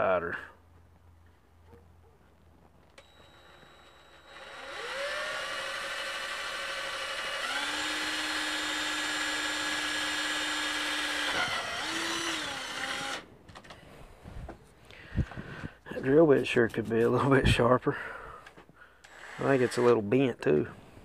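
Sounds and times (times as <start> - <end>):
cordless drill motor whining: 3.0 - 13.8, 19.0 - 20.2.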